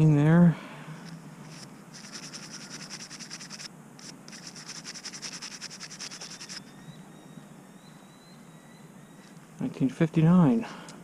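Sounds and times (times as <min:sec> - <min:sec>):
rapid scratching: 0:01.4 - 0:06.6.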